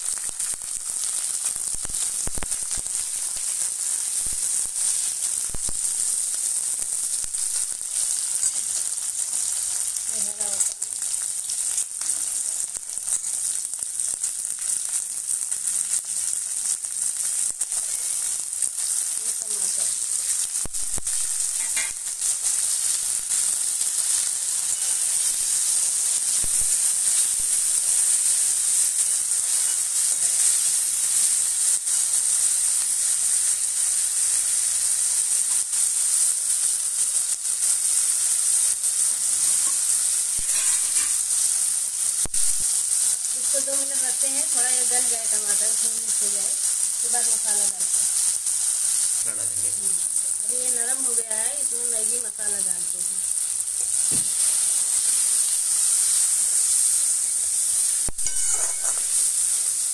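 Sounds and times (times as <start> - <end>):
vegetables sizzling in oil: 0.0 - 59.9
steel spoon scraping a pan: 17.6 - 18.3, 21.5 - 23.1, 24.0 - 25.6, 29.0 - 30.7, 39.4 - 41.6, 54.4 - 59.8.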